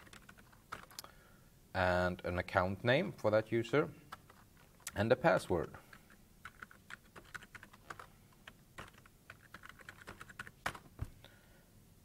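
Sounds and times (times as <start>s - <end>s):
keyboard typing clicks: 0.0s - 1.1s.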